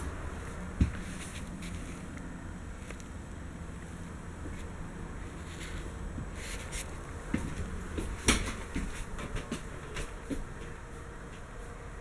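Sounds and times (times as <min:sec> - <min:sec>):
footsteps and handling knocks: 0:00.0 - 0:01.9, 0:05.6 - 0:11.8.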